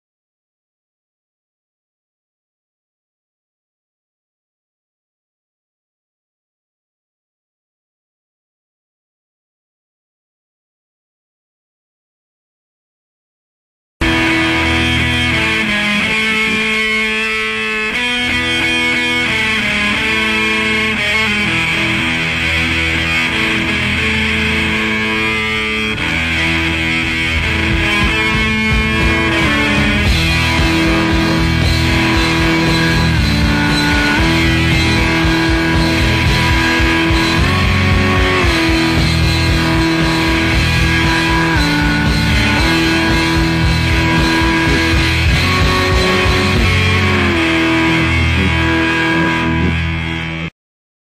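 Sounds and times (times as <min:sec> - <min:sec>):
loud rock music: 0:14.0 - 0:50.5.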